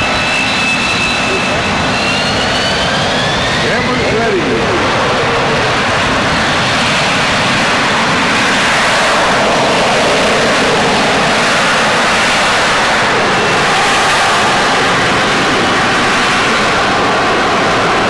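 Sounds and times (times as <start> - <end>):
jet engine roaring: 0.0 - 18.0.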